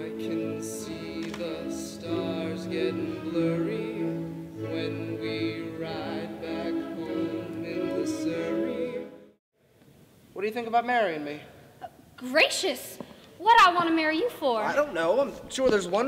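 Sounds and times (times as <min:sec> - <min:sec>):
orchestral accompaniment: 0:00.0 - 0:09.4.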